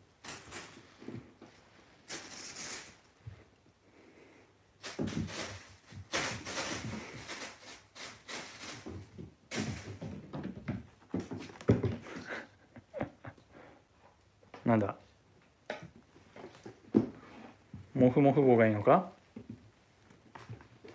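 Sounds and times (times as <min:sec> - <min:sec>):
plastic bag rustling: 0:00.0 - 0:03.2, 0:04.8 - 0:10.0.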